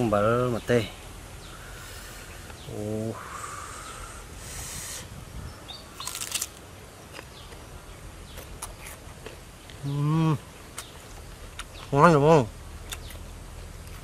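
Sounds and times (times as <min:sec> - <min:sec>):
crunchy bite: 0:06.0 - 0:07.3
chewing: 0:06.0 - 0:07.4.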